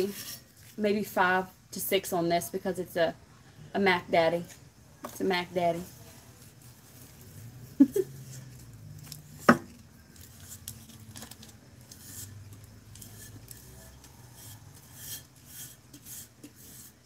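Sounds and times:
gloved hands rubbing and rustling: 0:05.5 - 0:17.0.

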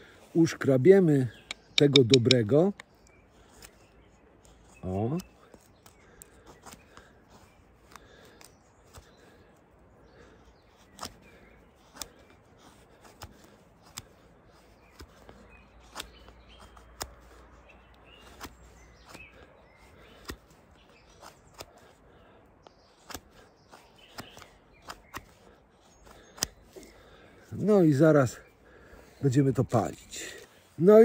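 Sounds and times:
faint birds chirping: 0:00.0 - 0:31.0
knife scraping shavings off twig: 0:10.1 - 0:27.2.

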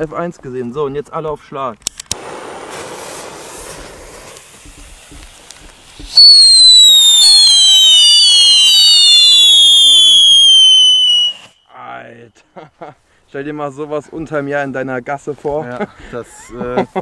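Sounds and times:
howling fireworks whistling: 0:02.2 - 0:11.7.

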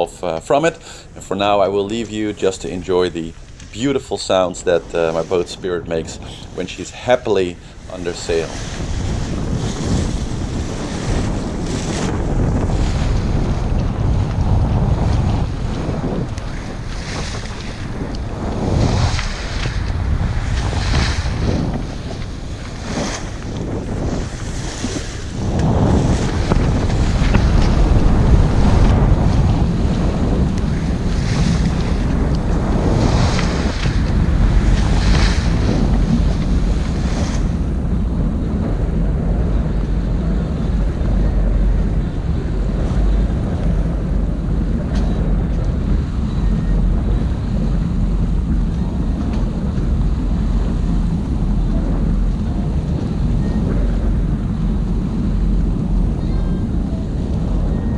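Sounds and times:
water rushing along hull: 0:00.0 - 0:57.9
wind rumble on microphone: 0:00.0 - 0:57.9.

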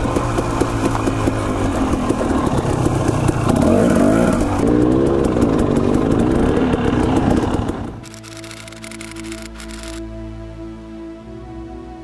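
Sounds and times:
dirt bike engine revving: 0:00.0 - 0:08.2.

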